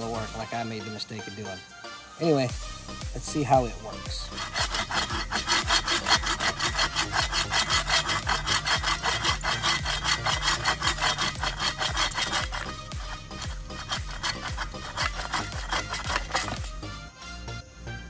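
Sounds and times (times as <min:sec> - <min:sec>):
saw cutting wood: 0:00.0 - 0:00.4, 0:03.3 - 0:17.2.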